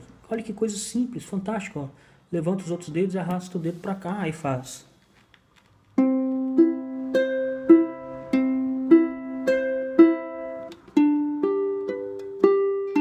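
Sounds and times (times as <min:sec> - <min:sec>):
ukulele fingerpicked slowly: 0:06.0 - 0:13.0.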